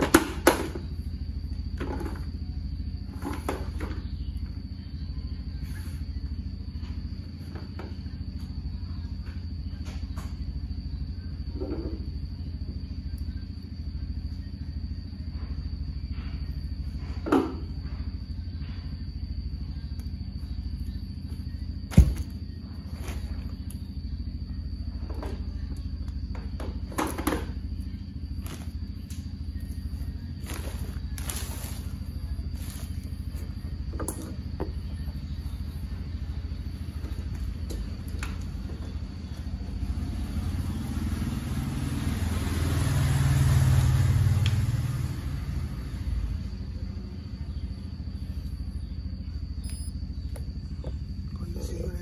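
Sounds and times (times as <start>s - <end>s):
cooling fans droning: 0.0s - 52.0s
low mechanical hum: 0.0s - 52.0s
power cable knocks and rustles: 21.9s - 22.4s.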